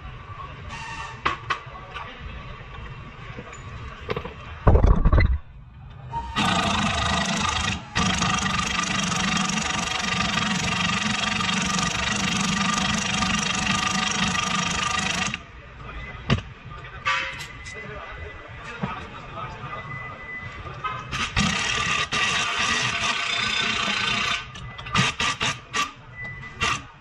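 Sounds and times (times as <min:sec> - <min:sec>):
heavy thump: 0:04.6 - 0:05.5
loud machine noise: 0:06.4 - 0:15.5, 0:21.1 - 0:26.0.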